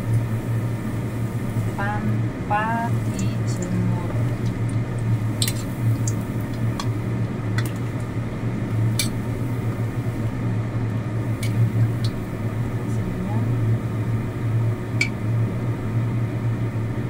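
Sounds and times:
steady low hum: 0.0 - 17.0
food sizzling in hot oil: 2.8 - 8.2.

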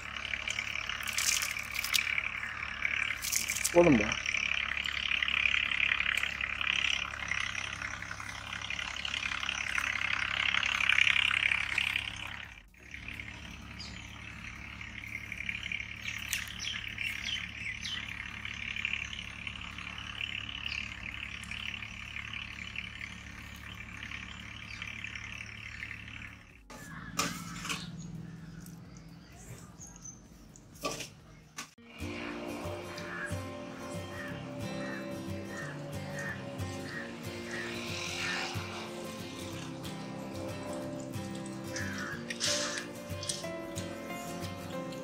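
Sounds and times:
bird chirps: 0.0 - 30.7, 31.3 - 45.0
pot simmering hiss: 36.9 - 42.9.

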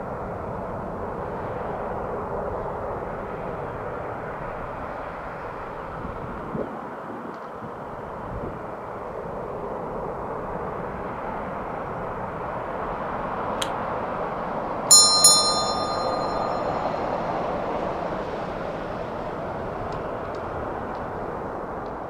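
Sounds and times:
bell ringing: 14.9 - 17.4.

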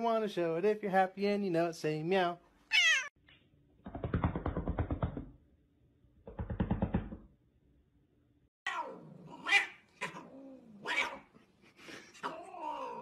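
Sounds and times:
cats fighting and yowling: 2.7 - 3.1, 8.6 - 11.4, 12.1 - 13.0.

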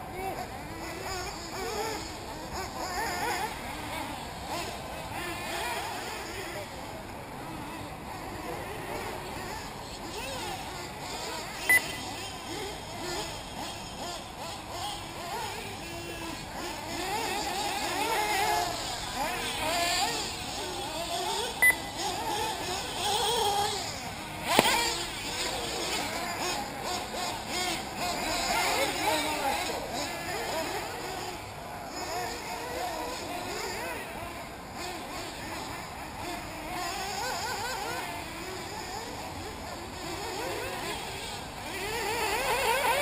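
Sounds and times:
model buggy engines revving: 0.0 - 43.0
sharp click: 24.5 - 24.8.

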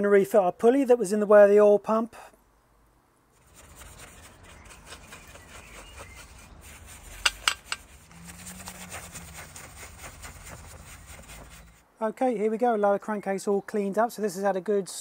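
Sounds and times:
light metal clicks and rubbing: 7.2 - 8.0.

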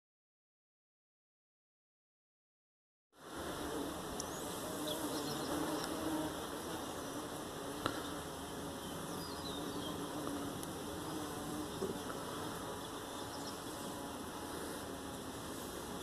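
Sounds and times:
outdoor hiss: 3.2 - 16.0
flying insect buzzing: 3.3 - 16.0.

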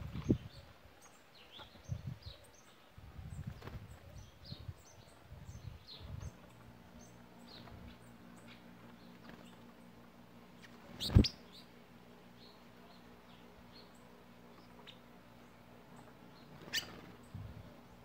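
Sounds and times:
faint low hum: 0.0 - 18.0
songbirds chirping: 0.0 - 18.0.

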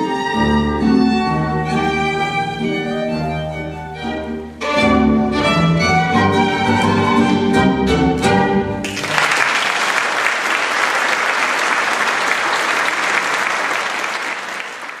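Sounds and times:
string quartet: 0.0 - 8.9
audience applause: 8.8 - 15.0.

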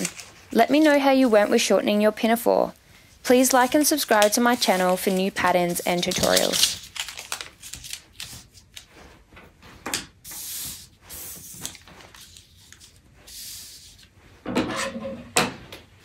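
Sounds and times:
paper swishing on a table: 3.3 - 14.2.

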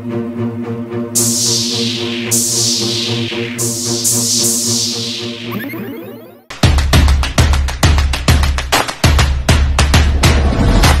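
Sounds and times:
electronic music with bass drum: 1.2 - 8.5.

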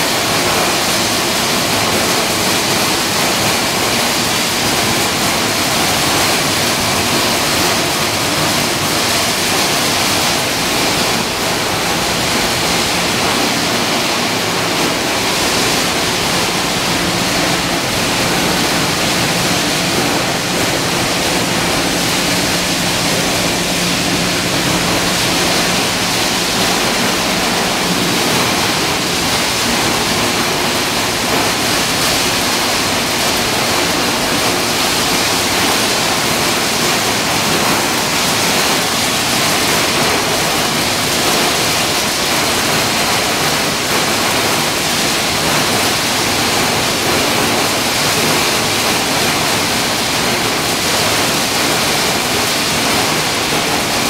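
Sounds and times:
machinery rushing noise: 7.0 - 36.9.

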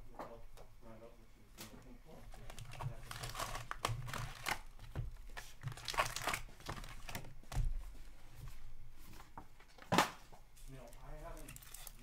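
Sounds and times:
foil wrappers crinkling: 2.3 - 7.6, 10.6 - 12.0.

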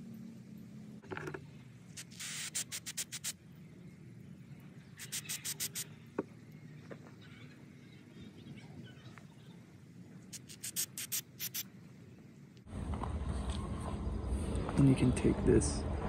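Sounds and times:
aerosol spray hissing: 1.9 - 3.4, 5.0 - 5.9, 10.3 - 11.7.

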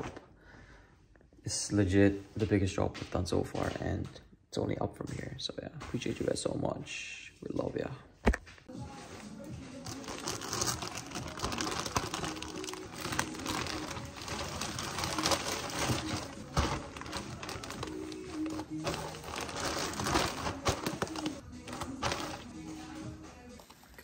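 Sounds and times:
plastic packaging crinkling: 9.8 - 22.8.

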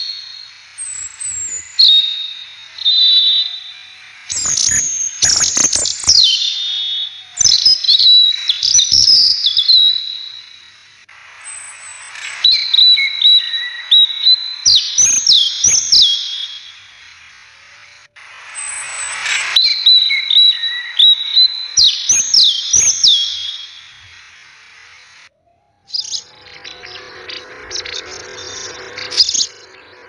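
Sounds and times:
bird chirps: 0.0 - 30.0
bird whistle: 0.0 - 30.0.

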